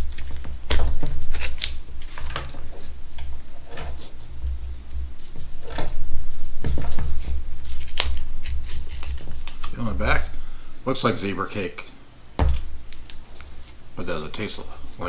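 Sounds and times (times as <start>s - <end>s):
carton crackles and clicks: 0.0s - 10.3s, 12.5s - 13.8s
dull handling thumps: 12.4s - 12.8s.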